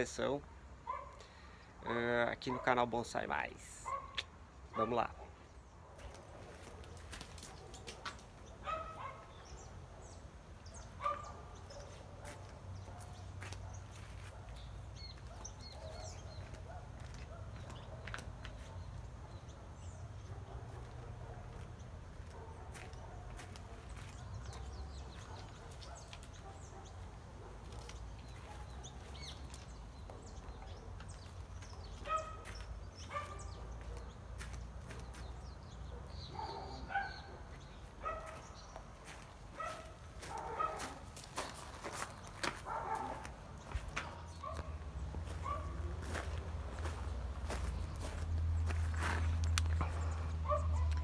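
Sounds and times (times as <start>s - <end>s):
small birds chirping: 0.0s - 51.0s.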